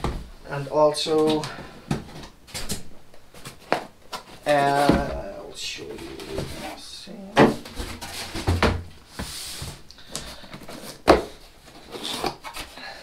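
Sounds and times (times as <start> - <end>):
sliding rustle of packaging: 7.6 - 13.0.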